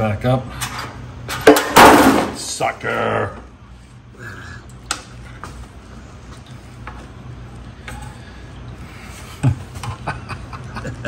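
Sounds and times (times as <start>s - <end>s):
man laughing: 9.1s - 11.0s.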